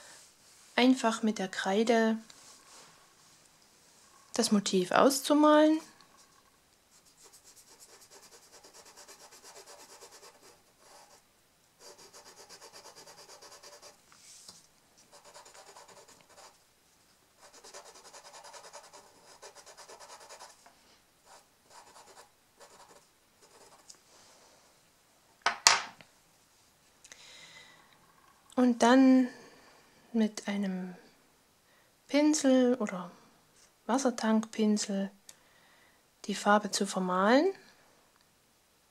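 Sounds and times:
crayon scratching on paper: 6.2s - 11.2s, 11.8s - 14.0s, 15.1s - 16.6s, 17.4s - 20.6s, 21.3s - 23.9s.

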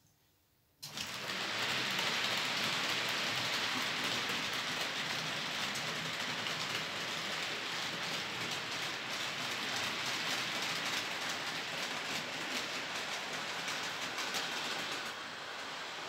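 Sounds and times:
model train wheels rattling: 0.8s - 15.3s.

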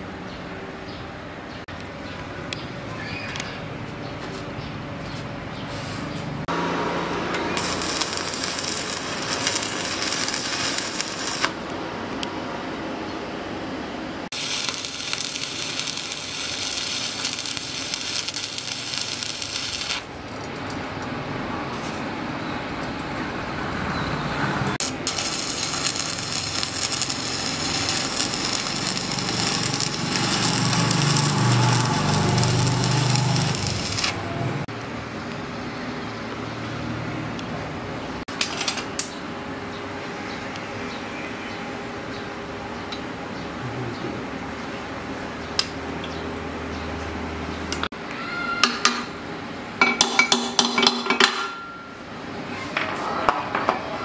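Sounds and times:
welding arc crackling and hissing: 7.5s - 11.7s, 14.3s - 20.5s, 24.8s - 34.3s.

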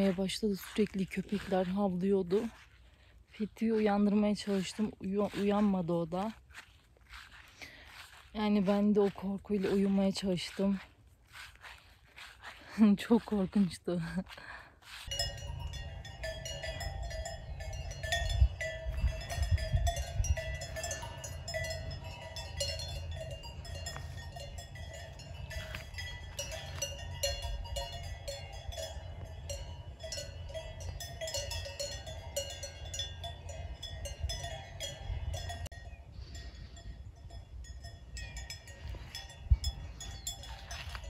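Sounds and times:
cattle bells clanking: 0.0s - 2.7s, 3.4s - 6.3s, 15.0s - 41.0s.

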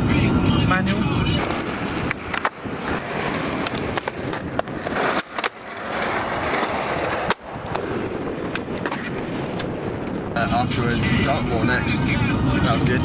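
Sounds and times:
skateboard rolling on concrete: 0.0s - 13.0s
skateboard clacking: 0.7s - 10.4s.

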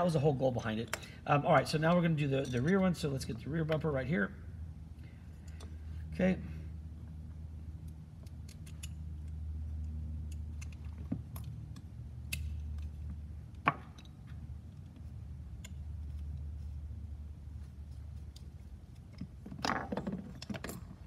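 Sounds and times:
steady low hum: 0.0s - 21.0s
light clicks of parts handled: 4.9s - 6.1s, 7.8s - 16.9s.

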